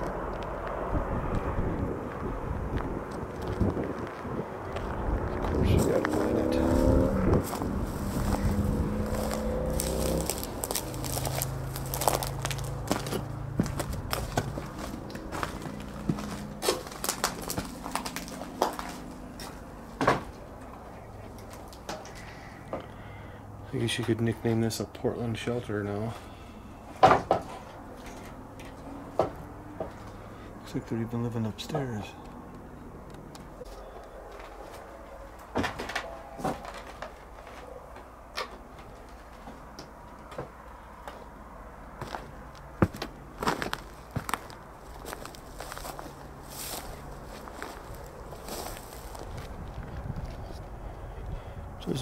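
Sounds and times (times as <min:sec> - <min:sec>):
footsteps on old wood: 0:02.1 - 0:22.8, 0:27.2 - 0:30.2, 0:33.6 - 0:50.6
wood and debris crunching underfoot: 0:02.8 - 0:22.5, 0:33.6 - 0:41.3, 0:42.0 - 0:50.7
footsteps on wooden floorboards: 0:04.7 - 0:20.3, 0:42.0 - 0:46.1.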